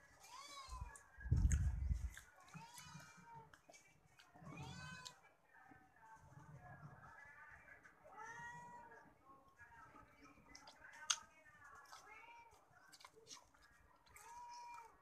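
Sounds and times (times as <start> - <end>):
cat meowing: 4.5 - 5.2.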